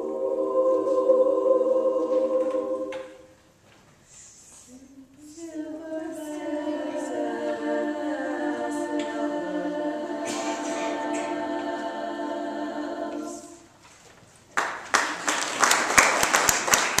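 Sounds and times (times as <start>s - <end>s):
women's choir singing: 0.0s - 3.4s, 5.1s - 13.8s
audience applause: 14.6s - 17.0s.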